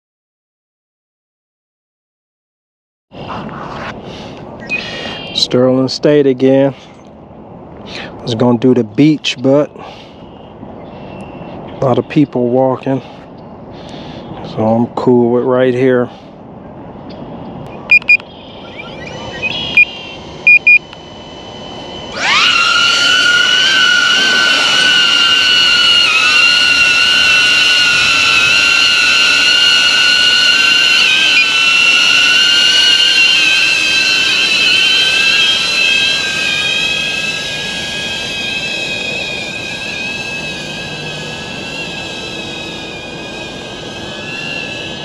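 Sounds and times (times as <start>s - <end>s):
drone propellers whining: 3.2s - 45.0s
short electronic beeps: 4.6s - 5.4s, 17.7s - 21.1s.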